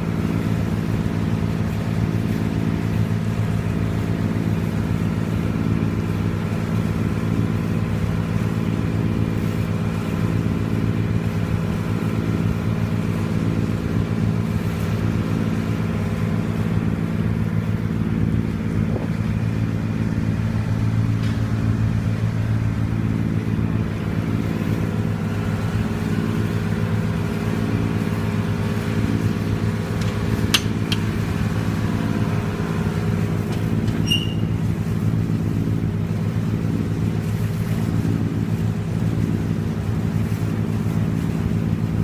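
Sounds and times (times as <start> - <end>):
ferry engine droning: 0.0 - 42.0
short high squeak: 33.9 - 34.6.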